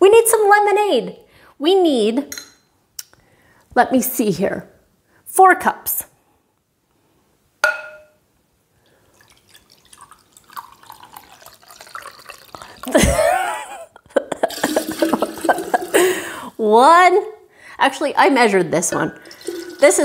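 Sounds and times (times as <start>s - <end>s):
glass clink: 7.6s - 8.2s
liquid pouring into glass: 9.0s - 13.0s, 14.4s - 16.4s, 19.2s - 20.0s.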